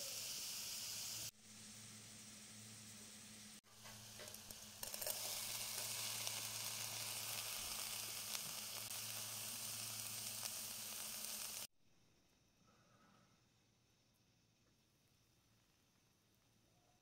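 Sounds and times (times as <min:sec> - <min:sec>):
crackles while stirring: 0:00.0 - 0:11.7
vegetables sizzling in hot oil: 0:00.0 - 0:11.7.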